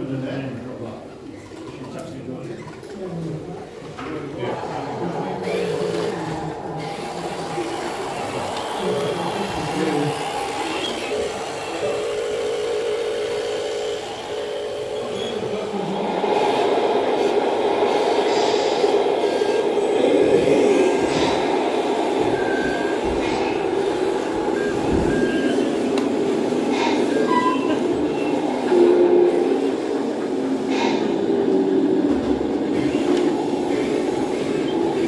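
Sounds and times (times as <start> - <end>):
model truck motors whining: 5.5 - 15.7.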